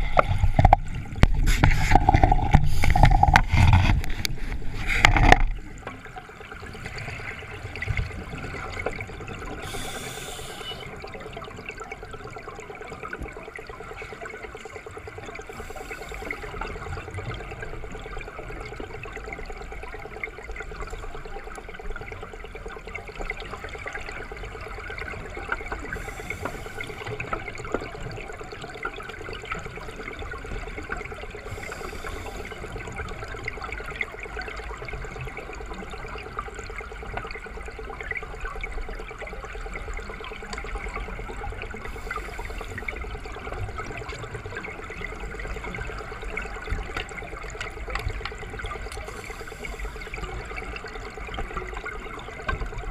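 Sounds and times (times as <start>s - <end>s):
underwater water rush: 0.0s - 52.9s
scuba regulator breath hissing: 9.6s - 10.9s, 31.5s - 32.5s.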